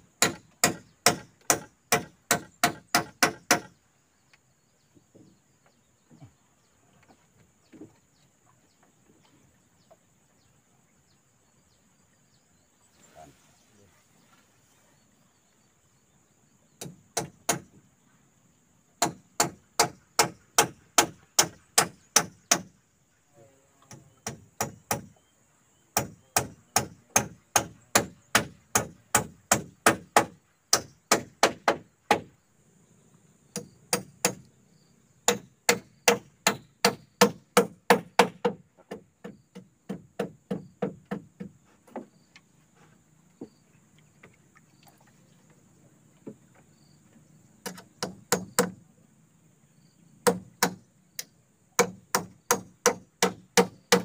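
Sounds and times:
hand tool striking wood: 0.2s - 3.7s, 16.8s - 17.7s, 19.0s - 22.7s, 26.0s - 32.3s, 33.5s - 34.4s, 35.3s - 42.1s, 47.6s - 48.8s, 50.2s - 50.8s, 51.8s - 54.0s.

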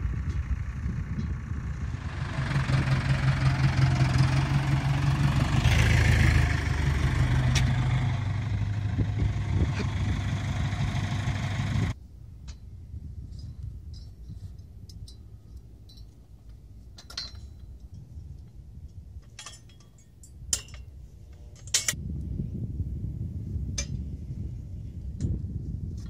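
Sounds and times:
low rumble: 0.0s - 15.6s
metal clinks and clanks: 13.4s - 18.1s, 19.2s - 22.0s.

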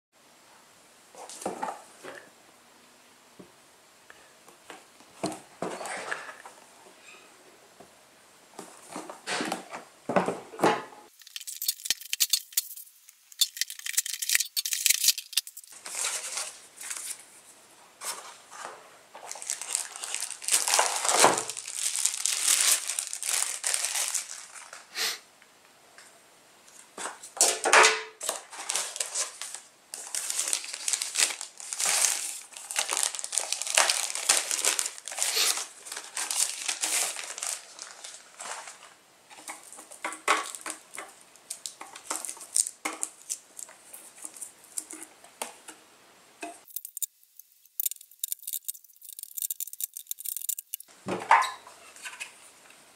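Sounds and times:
plastic wrapping rustling: 11.1s - 17.3s, 18.0s - 24.9s, 28.2s - 45.6s, 46.6s - 50.9s.

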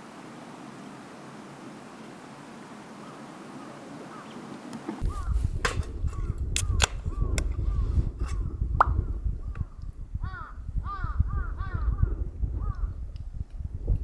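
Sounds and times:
bird calling: 2.9s - 5.5s
wind rumble on microphone: 5.0s - 14.0s
sharp clicks: 6.2s - 7.5s.

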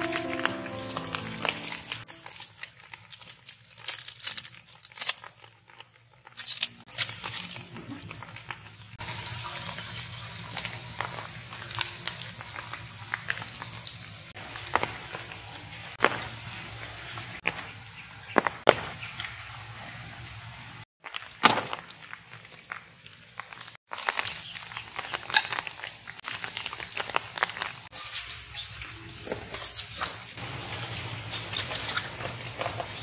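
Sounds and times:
leaves rustling: 0.0s - 9.0s.

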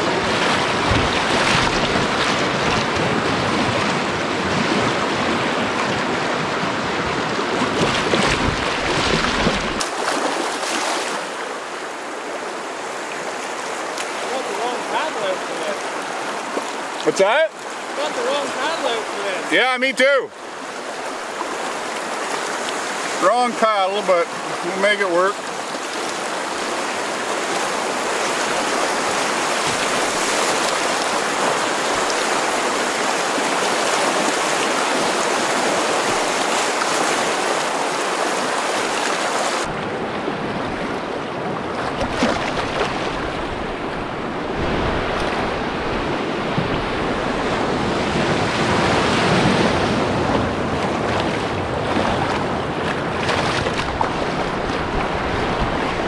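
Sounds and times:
wind rumble on microphone: 0.0s - 9.8s, 39.7s - 56.0s
river rapids rushing: 0.0s - 56.0s.

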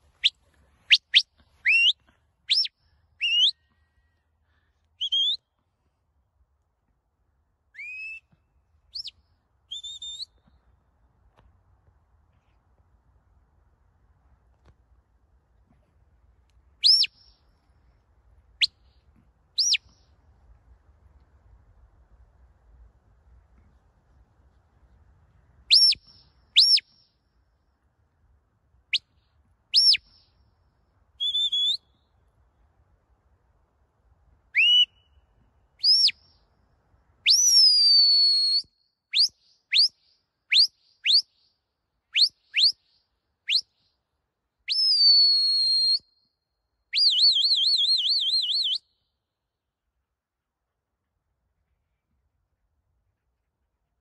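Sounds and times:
shepherd's whistle notes: 0.2s - 3.8s, 5.0s - 5.5s, 7.8s - 10.5s, 16.8s - 17.3s, 19.6s - 19.9s, 25.7s - 27.0s, 29.7s - 30.3s, 31.2s - 32.1s, 34.6s - 35.2s, 35.8s - 36.2s, 37.3s - 41.4s, 42.1s - 42.9s, 43.5s - 43.8s, 44.7s - 46.3s, 46.9s - 48.9s.

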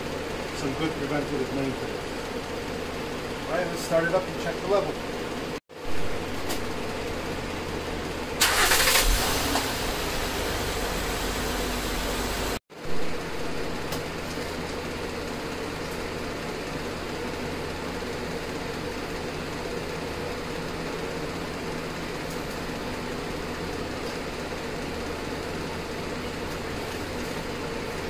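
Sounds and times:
car engine starting and idling: 6.2s - 28.0s.

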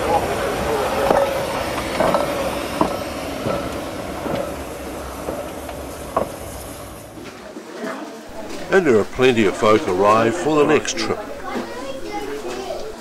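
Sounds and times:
running gear clanking: 0.0s - 7.5s
steam hissing: 0.0s - 7.5s
steam locomotive rolling: 0.0s - 13.0s.

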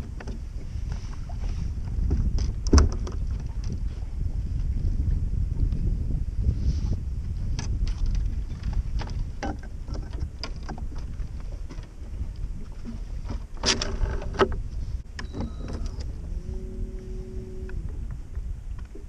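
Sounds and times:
wind rumbling on microphone: 0.0s - 19.0s
gear rattling and clicking: 7.6s - 11.9s.

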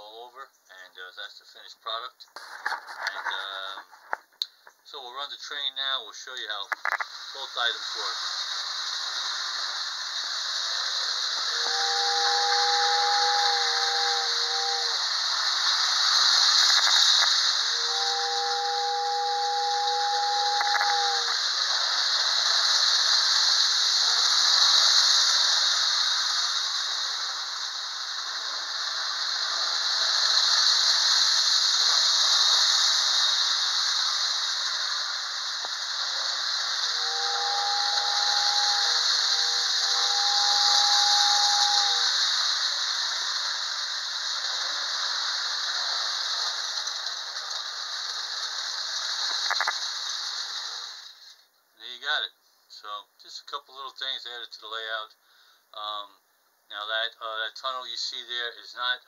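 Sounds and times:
airy hiss: 4.9s - 52.2s
toy train running on track: 7.4s - 51.4s
two-note toy train whistle: 11.4s - 15.0s, 17.6s - 21.4s, 36.9s - 42.2s.

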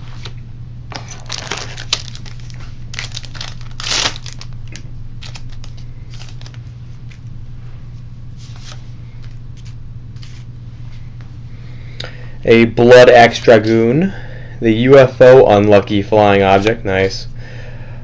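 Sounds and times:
steady low hum: 0.0s - 18.0s
foil wrappers crinkling: 0.9s - 7.2s
foil pack tearing: 1.0s - 6.6s.

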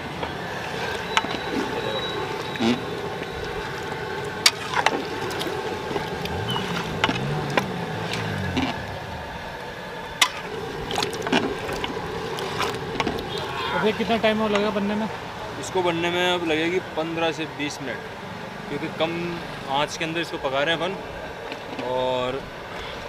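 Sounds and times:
ladle stirring wet food: 0.3s - 9.0s, 10.2s - 13.5s.

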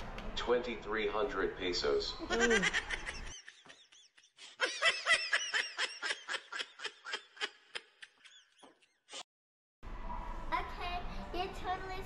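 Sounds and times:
person laughing: 2.3s - 8.4s.

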